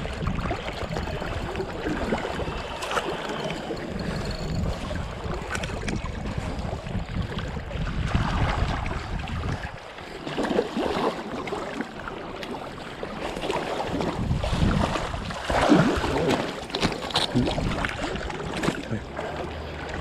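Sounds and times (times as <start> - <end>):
wind buffeting microphone: 0.0 - 10.2, 13.0 - 19.1
river water rushing and splashing: 7.8 - 20.0.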